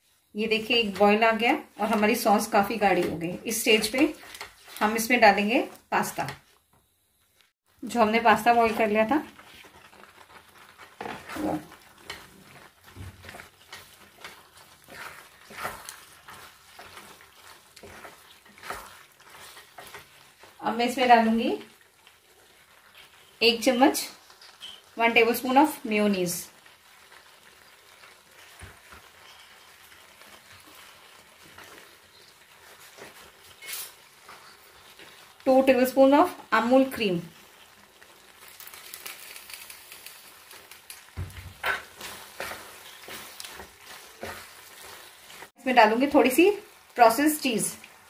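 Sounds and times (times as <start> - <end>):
spatula scraping a pan: 8.2 - 25.5, 26.2 - 45.5.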